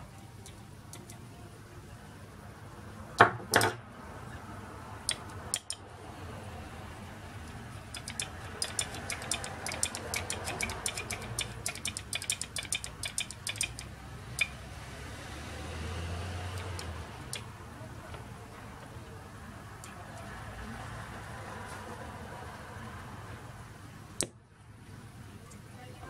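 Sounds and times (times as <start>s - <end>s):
screwdriver clicking against plastic block: 5.1s - 5.8s, 7.9s - 14.5s, 16.6s - 17.5s.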